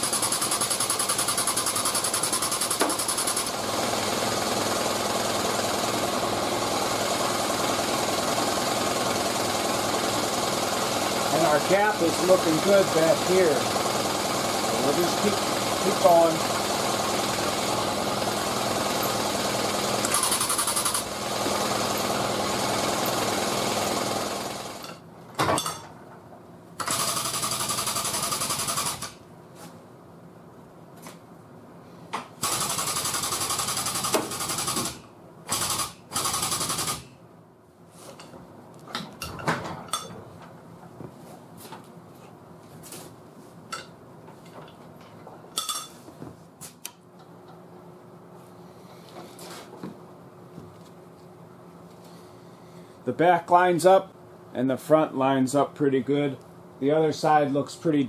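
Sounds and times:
machine rattling loudly: 0.0s - 24.9s, 26.8s - 29.2s, 32.4s - 37.1s.

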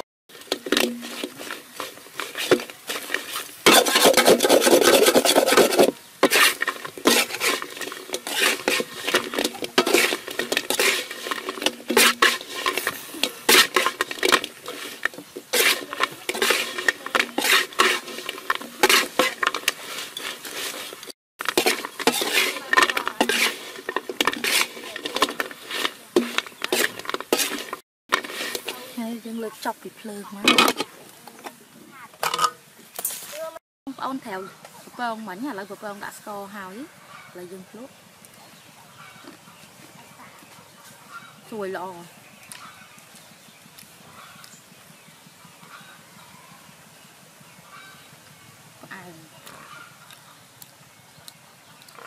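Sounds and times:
metal spatula scraping wok: 0.3s - 31.6s.

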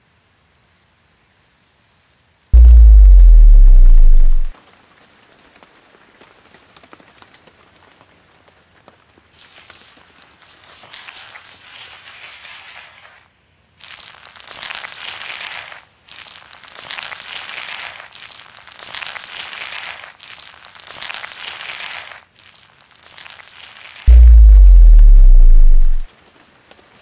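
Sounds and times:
loud deep drone: 2.6s - 4.5s, 24.1s - 26.1s
rough crackly noise: 2.6s - 4.6s, 14.0s - 27.0s.

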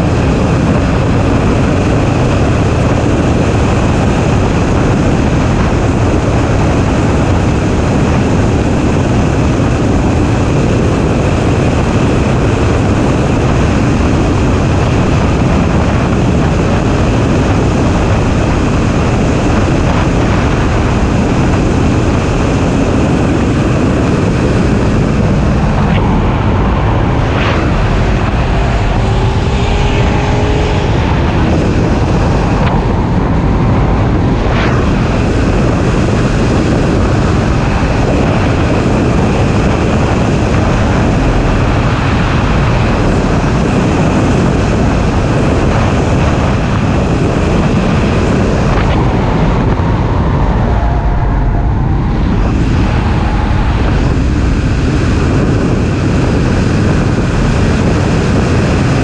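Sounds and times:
car engine running at speed: 0.0s - 59.0s
wind rushing: 0.0s - 59.0s.

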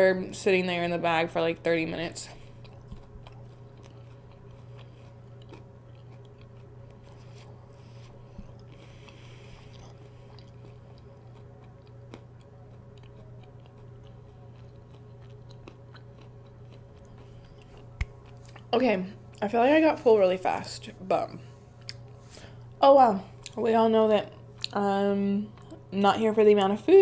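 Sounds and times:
low hum: 0.0s - 27.0s
chewing crunchy food: 2.2s - 19.4s, 21.7s - 24.8s, 25.4s - 26.2s.

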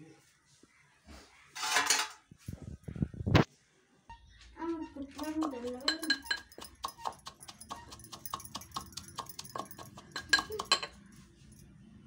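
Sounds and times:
pestle pounding in metal mortar: 5.2s - 11.0s.

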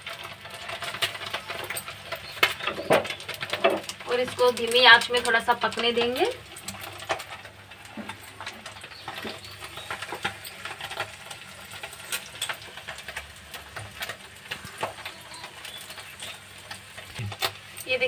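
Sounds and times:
crackling and popping: 0.0s - 18.0s
omelette frying in oil: 0.0s - 18.0s.

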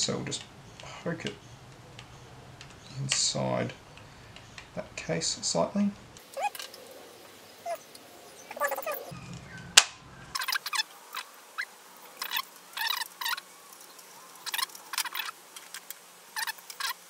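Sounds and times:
screws squeaking into plastic: 16.4s - 17.0s.

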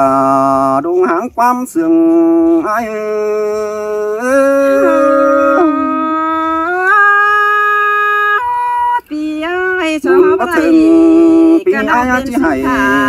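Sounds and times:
person singing long notes: 1.9s - 13.0s.

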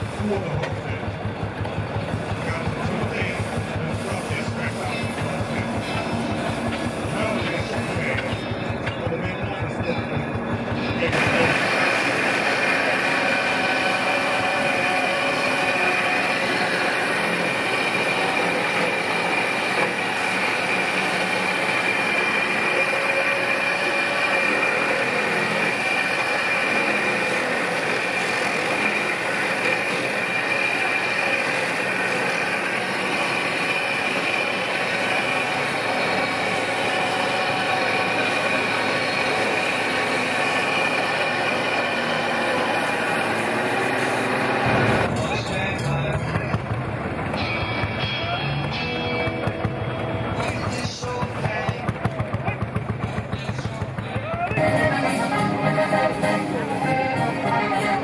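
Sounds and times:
machinery clatter: 0.0s - 58.0s
woodcarving machine whining: 9.8s - 45.3s.

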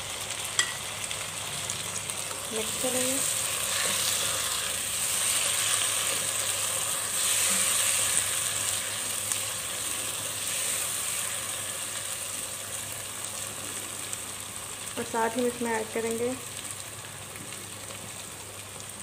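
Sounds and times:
vegetables sizzling in hot oil: 0.0s - 19.0s
spoon stirring in a pan: 2.2s - 9.6s.

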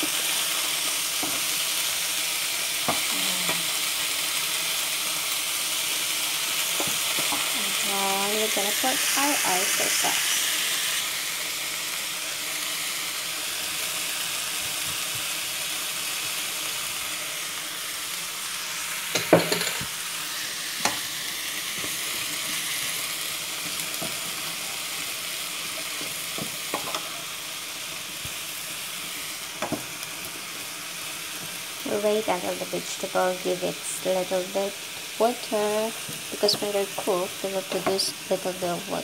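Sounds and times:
vegetables sizzling in oil: 0.0s - 39.0s.

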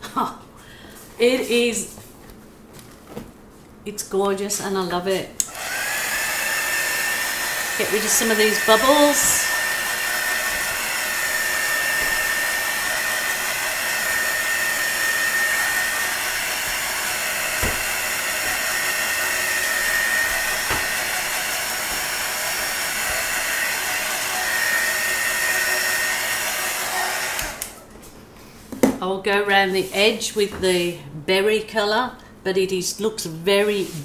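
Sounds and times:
hot-air blower running: 5.4s - 27.9s.

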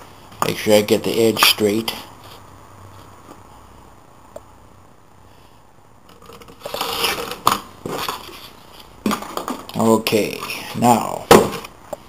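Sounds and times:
blade scraping through cardboard: 6.4s - 8.6s.

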